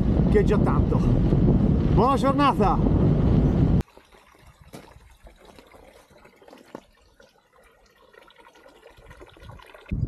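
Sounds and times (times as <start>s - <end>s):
water trickling from fountain: 3.8s - 10.0s.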